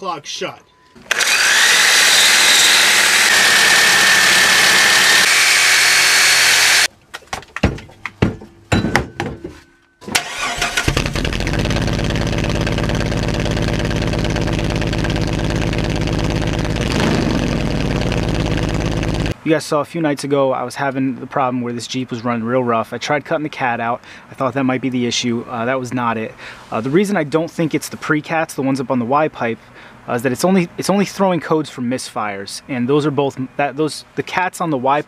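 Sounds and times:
reciprocating saw cutting metal: 1.0 - 6.9
car engine running rough: 10.3 - 19.4.

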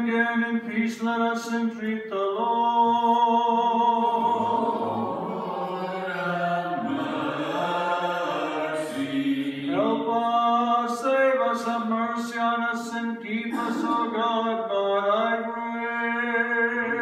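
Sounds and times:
voices chanting slowly: 2.4 - 12.3, 13.3 - 14.9.

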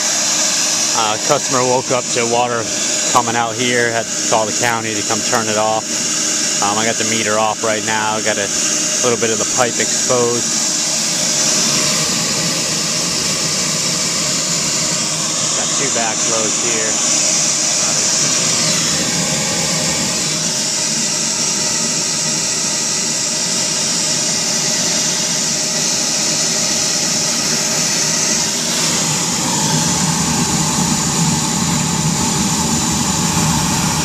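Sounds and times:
water spraying with loud hiss: 0.0 - 21.3.

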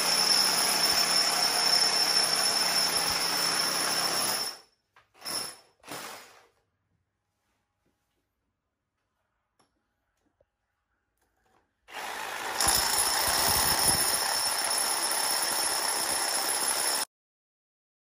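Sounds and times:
power tool motor whining: 11.9 - 17.0.

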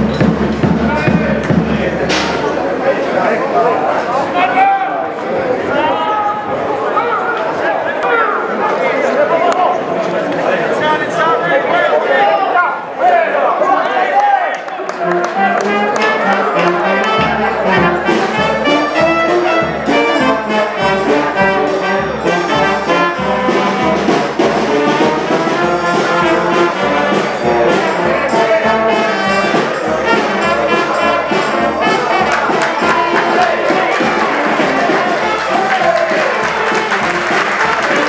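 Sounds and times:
brass-led orchestral music with beat: 14.9 - 38.0.

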